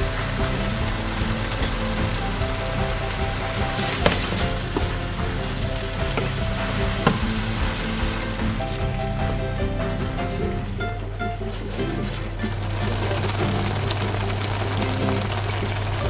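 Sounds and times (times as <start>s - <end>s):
food sizzling in a frying pan: 0.1s - 8.4s, 12.7s - 16.0s
spatula knocking against pan: 3.7s - 8.4s.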